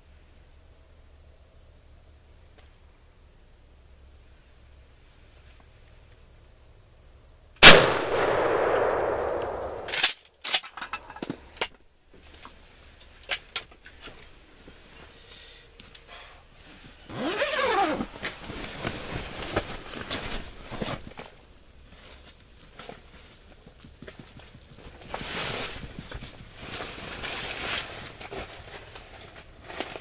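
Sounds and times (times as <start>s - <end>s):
gunshot echo: 7.6s - 10.1s
noisy rustling: 7.6s - 30.0s.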